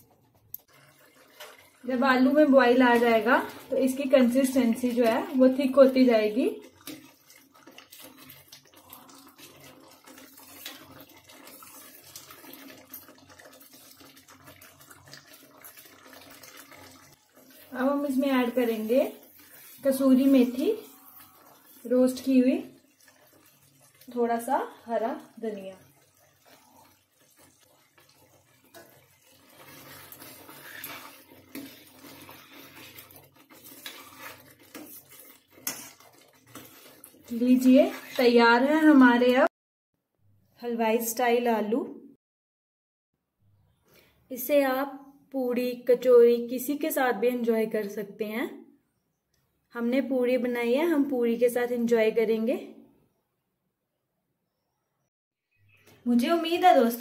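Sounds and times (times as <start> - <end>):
liquid sloshing and bubbling: 0.0 - 38.8
metal spoon scraping a pan: 17.4 - 24.1, 25.8 - 38.5.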